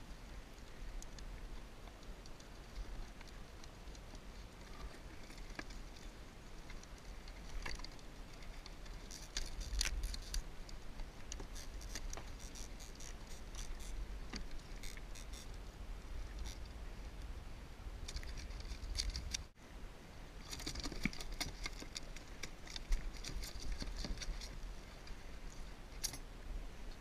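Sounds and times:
clicks and rattles of net handling: 0:02.3 - 0:10.4, 0:20.4 - 0:25.1.

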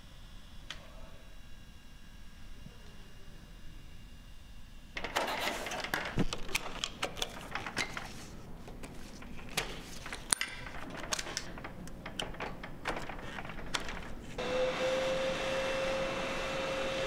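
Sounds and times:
metal and plastic parts rattling: 0:05.0 - 0:14.4.

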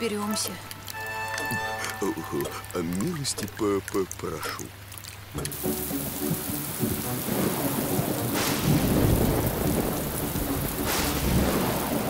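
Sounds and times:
heavy rain falling: 0:00.0 - 0:12.0
low rolling thunder: 0:06.0 - 0:12.0.

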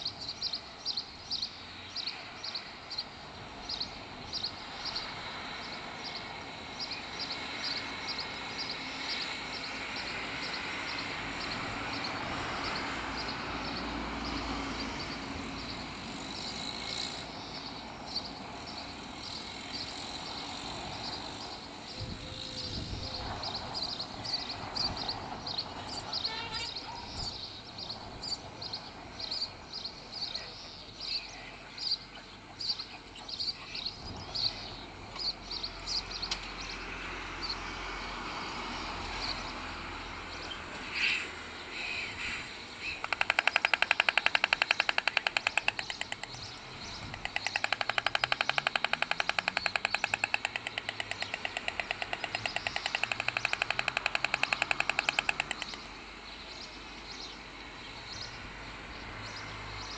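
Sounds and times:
small birds chirping: 0:00.0 - 0:37.7, 0:39.2 - 0:59.9
stork bill clattering: 0:43.0 - 0:55.9.

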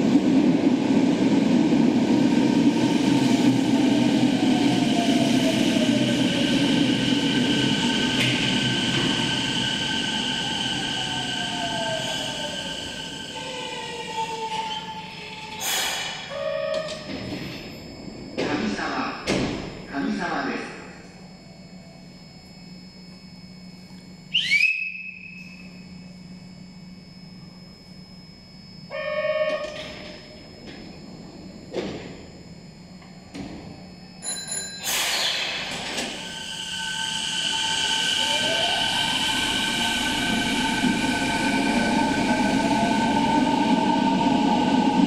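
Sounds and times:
subway train motors whining: 0:00.0 - 0:45.0.

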